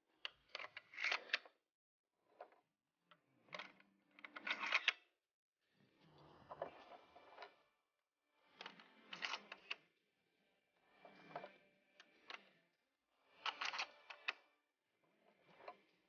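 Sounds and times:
faint metallic clicks and scrapes: 0:00.2 - 0:01.6, 0:03.4 - 0:05.1, 0:06.2 - 0:07.6, 0:08.6 - 0:09.8, 0:11.0 - 0:12.6, 0:13.4 - 0:14.5, 0:15.2 - 0:16.0.

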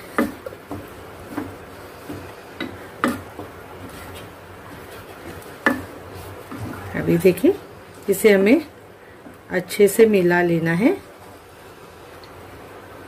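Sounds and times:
wooden spatula scraping saucepan: 0:00.0 - 0:07.5.

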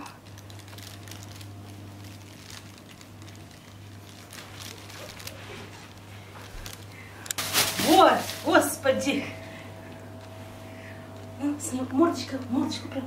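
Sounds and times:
plastic bag crinkling: 0:00.0 - 0:09.4
low hum: 0:00.0 - 0:13.0.

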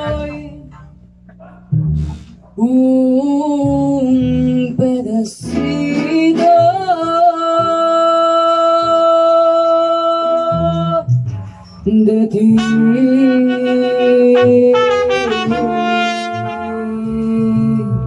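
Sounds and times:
strummed guitars: 0:00.0 - 0:18.0
mariachi band playing and singing: 0:03.7 - 0:18.0.

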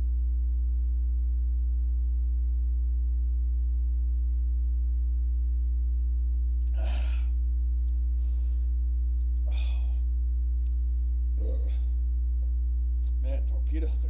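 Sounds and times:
steady low hum: 0:00.0 - 0:14.0
man gasping and exhaling: 0:06.7 - 0:07.4, 0:09.4 - 0:10.0.

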